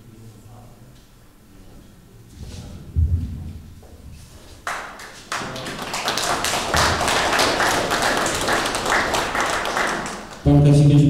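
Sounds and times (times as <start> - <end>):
crowd applauding: 4.6 - 10.5.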